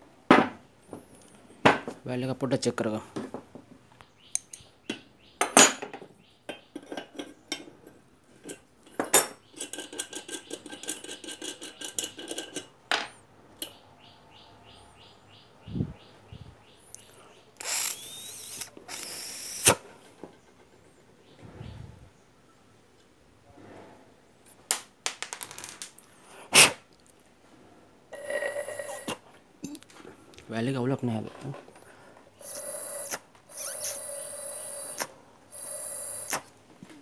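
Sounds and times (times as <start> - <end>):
hissing bursts: 17.6 - 19.8, 32.4 - 36.5.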